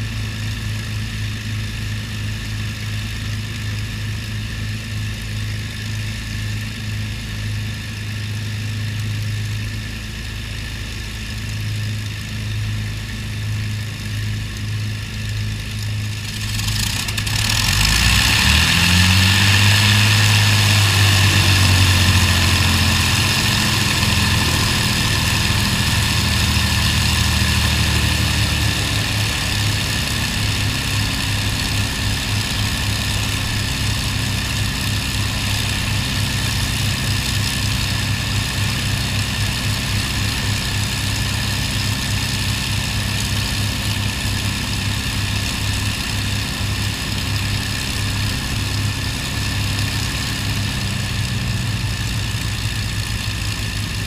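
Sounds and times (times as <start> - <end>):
aircraft engine idling: 0.0 - 54.0
aircraft engine starting: 0.0 - 54.0.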